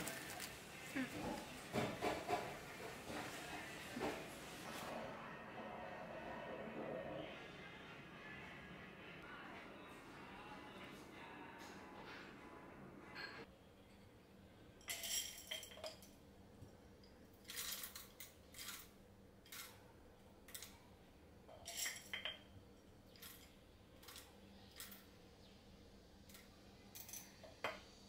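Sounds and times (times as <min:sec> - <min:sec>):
plastic and paper crinkling: 0:00.0 - 0:01.8.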